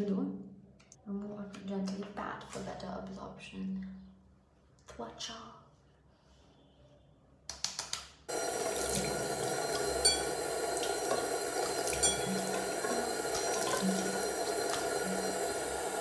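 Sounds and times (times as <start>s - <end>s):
tap running into sink: 8.3s - 15.8s
water splashing on face: 8.3s - 16.0s.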